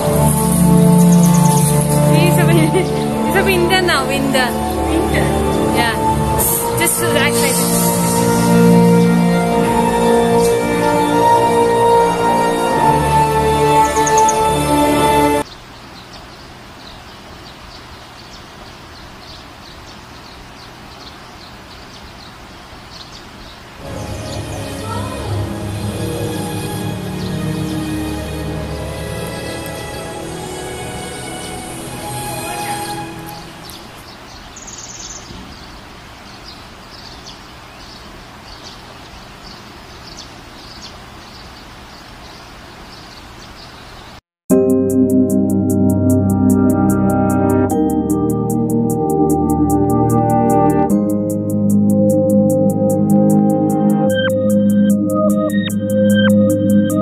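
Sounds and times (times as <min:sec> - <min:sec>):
music: 0:00.0 - 0:15.4, 0:23.8 - 0:33.7, 0:44.5 - 0:57.0
steady forest hiss: 0:00.0 - 0:44.2
faint high bird chirps: 0:01.0 - 0:01.8, 0:13.8 - 0:14.4, 0:33.4 - 0:44.2
steady hiss: 0:06.4 - 0:11.0.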